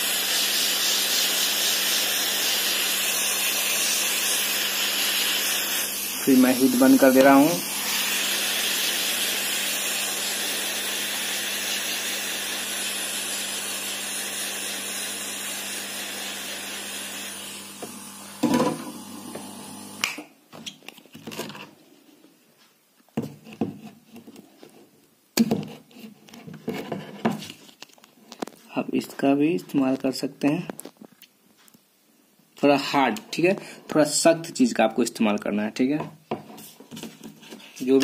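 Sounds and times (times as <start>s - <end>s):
hot air gun blowing: 0.0s - 20.2s
knocks and handling sounds: 20.5s - 21.8s, 22.5s - 28.7s.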